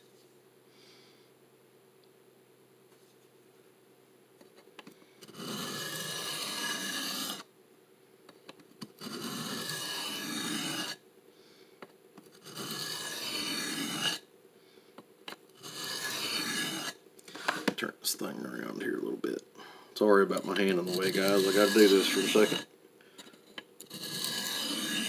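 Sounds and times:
knife scraping on sharpening plate: 5.4s - 7.4s, 9.0s - 11.0s, 12.4s - 14.2s, 15.6s - 16.9s, 20.9s - 22.7s, 23.9s - 25.0s.

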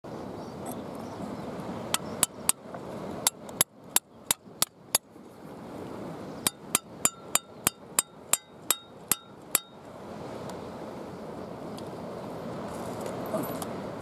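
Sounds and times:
hammer striking steel piton: 6.4s - 9.8s.

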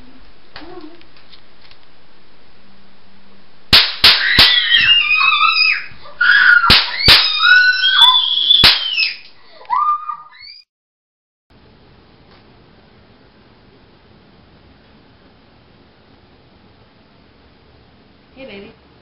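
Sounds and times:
gunshot bangs: 3.8s - 4.6s
high-pitched screaming: 4.0s - 10.6s.

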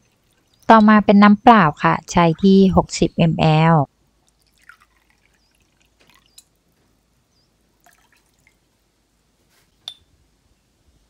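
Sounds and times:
water trickling and dripping: 0.0s - 1.0s, 4.0s - 7.0s, 7.6s - 8.8s
glass clink: 9.9s - 10.1s.

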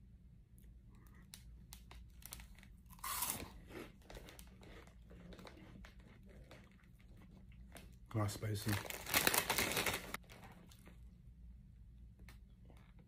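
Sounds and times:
crunchy snack chewing: 1.9s - 8.0s.

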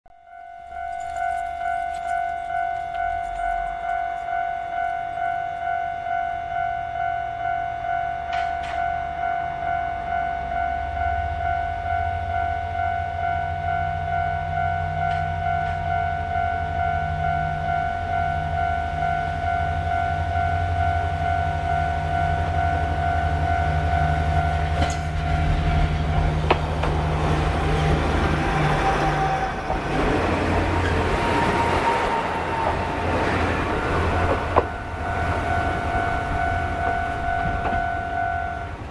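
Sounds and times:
level crossing warning bell: 0.1s - 38.9s
diesel engine low rumble: 14.9s - 38.9s
train wheels clicking over rail joints: 24.8s - 35.4s.

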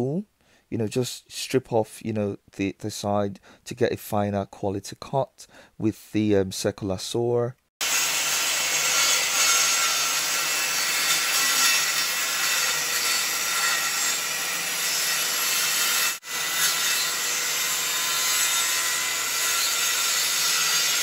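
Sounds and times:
circular saw cutting wood: 7.8s - 21.0s.

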